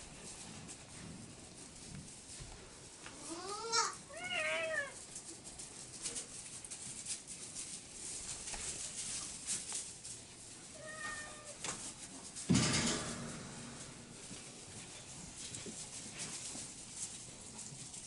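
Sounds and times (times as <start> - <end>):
faint rustling and clicking: 0.0 - 18.0
animal meow-like cries: 3.2 - 5.0, 10.8 - 11.6
loud thump: 12.5 - 14.1.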